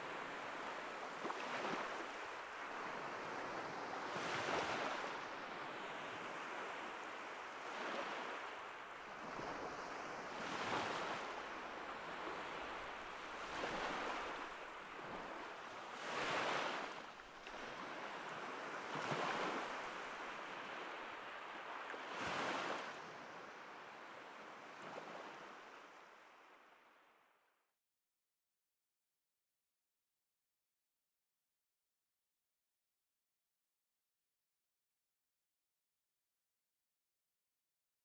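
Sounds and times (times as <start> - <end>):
waves washing on shore: 0.0 - 26.0.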